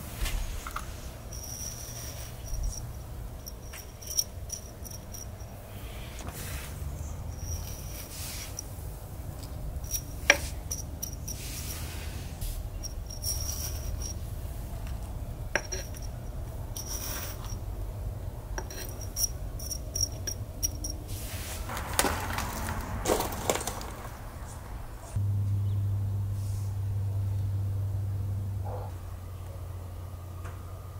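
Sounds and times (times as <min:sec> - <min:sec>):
rustling and crunching of soil: 0:21.1 - 0:25.2.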